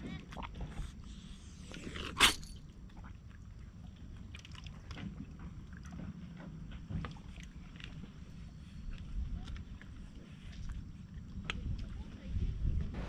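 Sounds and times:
water lapping against stone: 0:00.0 - 0:02.8.

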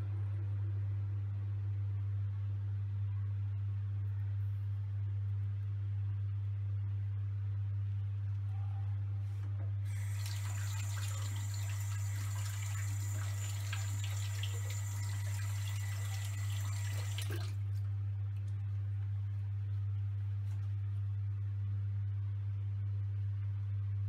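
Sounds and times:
steady low hum: 0:00.0 - 0:24.0
tap water running: 0:09.9 - 0:17.6.

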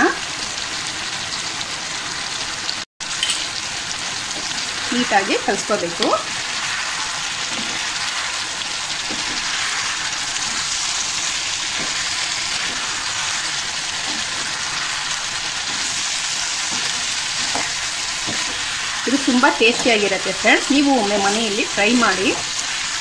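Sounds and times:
chicken sizzling in a pan: 0:00.0 - 0:23.0
spatula scraping a pan: 0:06.6 - 0:23.0.

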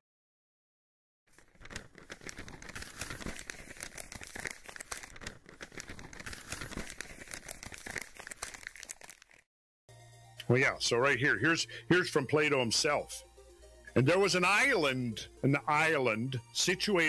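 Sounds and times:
paper crinkling: 0:01.3 - 0:09.5.

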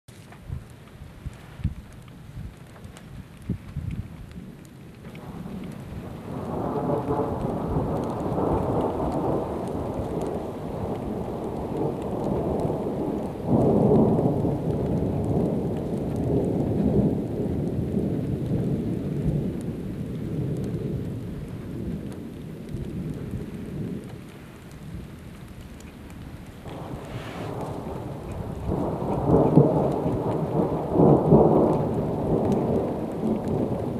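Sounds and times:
rain: 0:00.1 - 0:33.9
thunder rumbling: 0:03.3 - 0:25.4, 0:26.2 - 0:33.9.

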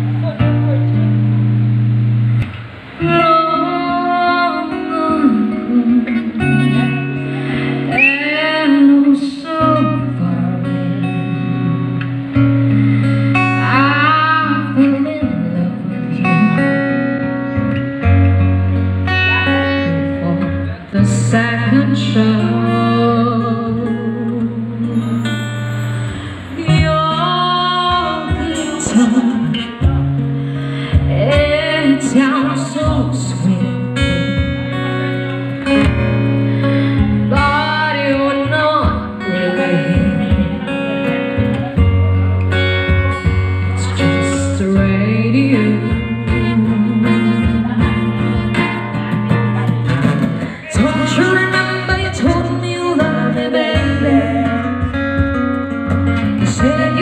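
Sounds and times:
acoustic guitar: 0:00.0 - 0:57.0
woman singing into microphone: 0:02.5 - 0:18.1, 0:19.0 - 0:36.0, 0:36.6 - 0:57.0
cajon drumming: 0:27.6 - 0:30.3, 0:30.9 - 0:33.4, 0:34.0 - 0:57.0.

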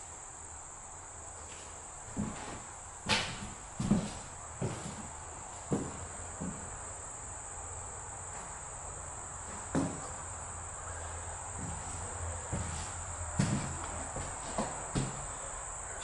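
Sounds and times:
crickets chirring: 0:00.0 - 0:16.0
footsteps on wooden floor: 0:01.5 - 0:06.8, 0:09.5 - 0:10.2, 0:11.6 - 0:15.4.

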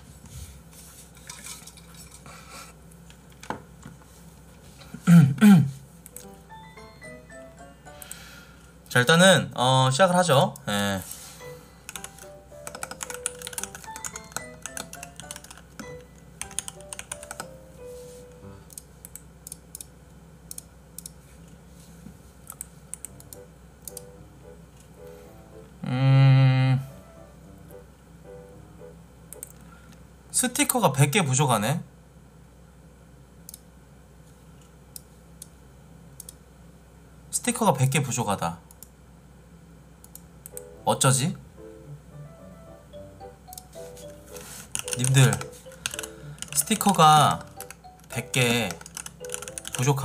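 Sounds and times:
soft music notes: 0:11.4 - 0:18.8, 0:23.1 - 0:29.1, 0:40.6 - 0:50.0
keyboard keystrokes: 0:11.9 - 0:17.6, 0:44.7 - 0:50.0
person humming: 0:25.8 - 0:27.1.

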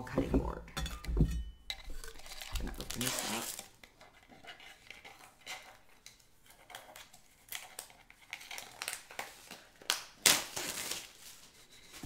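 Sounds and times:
packaging crinkling and rustling: 0:01.9 - 0:06.0, 0:06.6 - 0:12.0.

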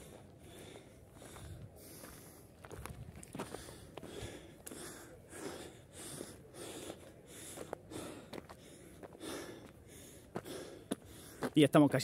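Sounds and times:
person breathing hard: 0:00.0 - 0:02.6, 0:03.3 - 0:11.5
footsteps: 0:01.2 - 0:04.8.

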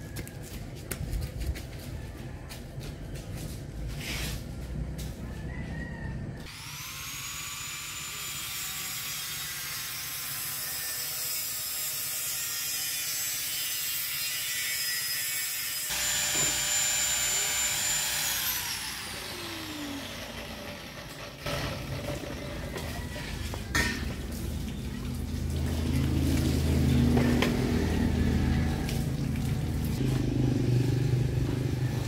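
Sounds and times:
electric motor whining: 0:15.9 - 0:22.2.

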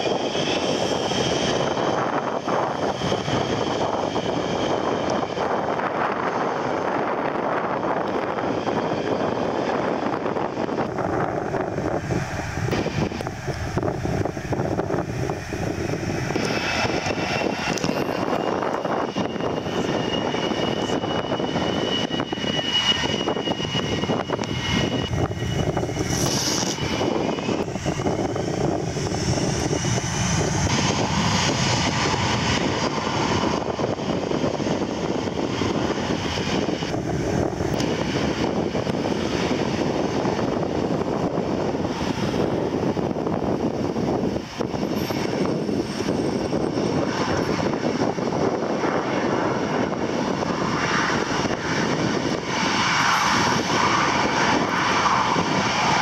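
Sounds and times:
jet engines running with high whine: 0:00.0 - 0:56.0.

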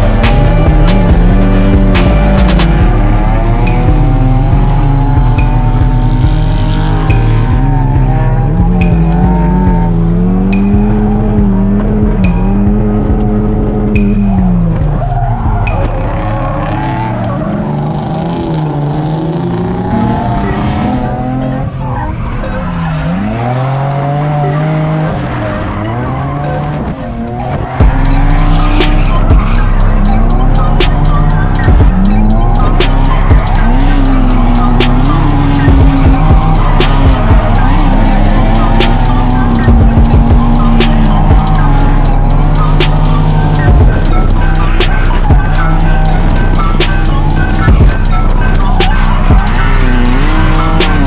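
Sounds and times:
music with steady beat: 0:00.0 - 0:17.1, 0:27.6 - 0:51.0
car engines revving: 0:00.0 - 0:51.0
tyres squealing: 0:20.3 - 0:51.0.

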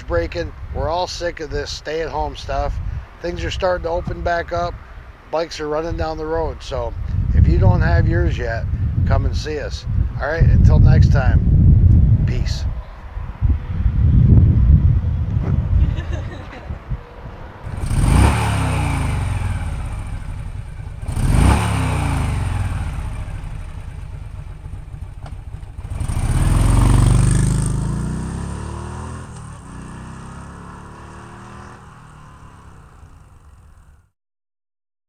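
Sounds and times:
motorcycle engine revving past: 0:17.6 - 0:34.1.

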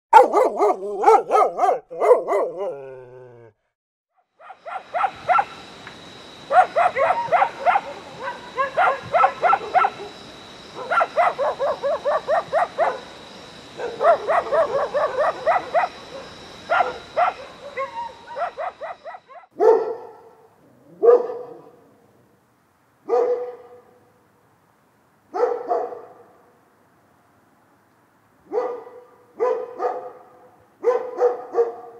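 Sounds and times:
dogs barking: 0:00.1 - 0:03.0, 0:04.4 - 0:05.6, 0:06.5 - 0:13.1, 0:13.8 - 0:21.8, 0:23.1 - 0:23.9, 0:25.3 - 0:26.3, 0:28.5 - 0:31.9.

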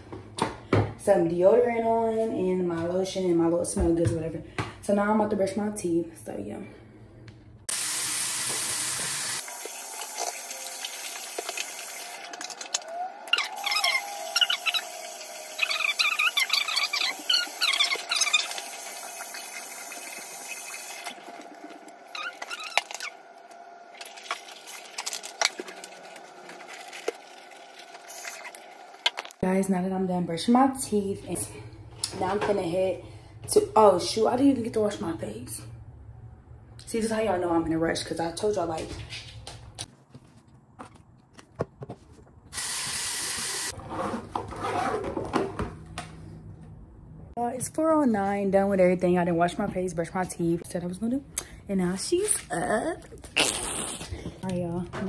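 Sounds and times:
water running in a sink: 0:07.7 - 0:12.8, 0:13.5 - 0:23.2, 0:23.9 - 0:29.4, 0:42.6 - 0:43.8
toiletry bag rustling: 0:24.1 - 0:28.9.

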